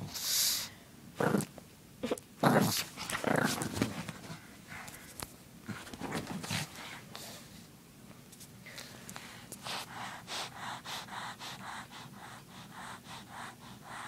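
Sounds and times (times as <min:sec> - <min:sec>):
puppy growling and grunting: 0:01.2 - 0:03.9.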